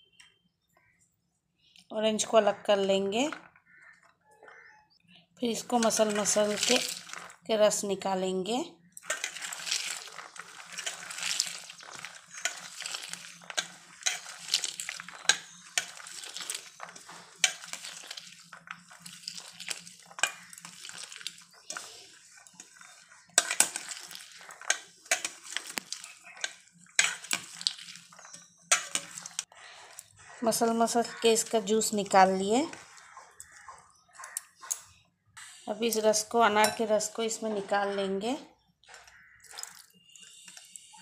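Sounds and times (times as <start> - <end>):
wet squishing of pomegranate seeds: 5.6 - 7.5, 8.8 - 34.8, 38.8 - 40.8.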